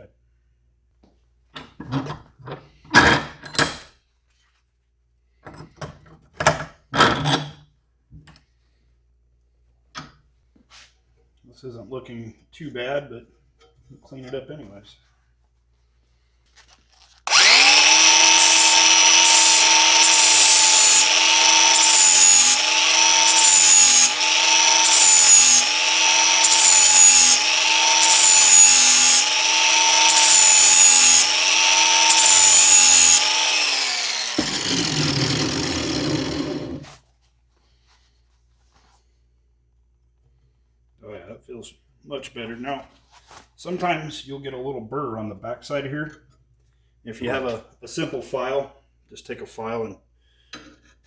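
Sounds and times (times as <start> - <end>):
angle grinder grinding steel: 17.2 - 36.9.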